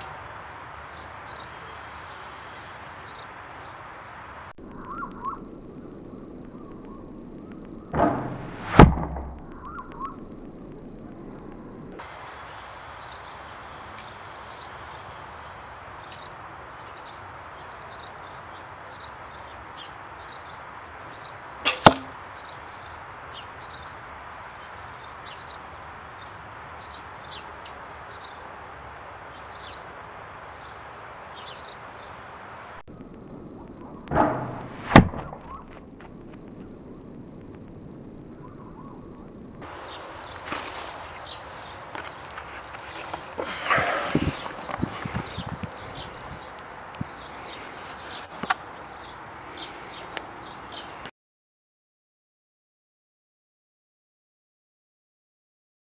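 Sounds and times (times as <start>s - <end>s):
steady hiss: 0.0s - 4.5s, 11.9s - 17.5s, 39.6s - 48.4s
short high chirps: 4.6s - 12.0s
bow string snap: 21.7s - 22.2s.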